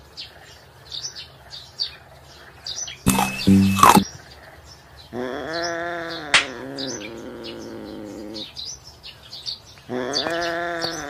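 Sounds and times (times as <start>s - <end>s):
sharp click: 3.1s - 4.0s.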